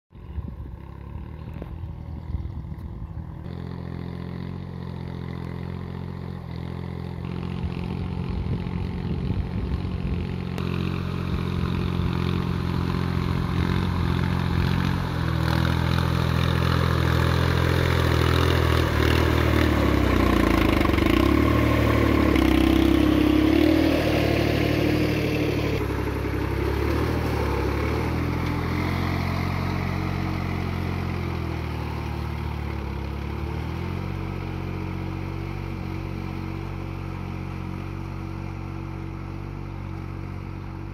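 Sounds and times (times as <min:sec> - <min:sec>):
tractor engine running: 0:00.2 - 0:40.9.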